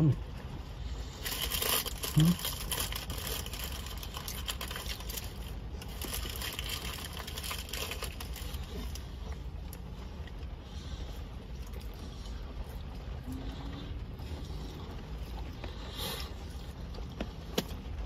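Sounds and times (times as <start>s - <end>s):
car rumble: 0.0s - 18.0s
food wrapper crinkling: 1.2s - 9.1s.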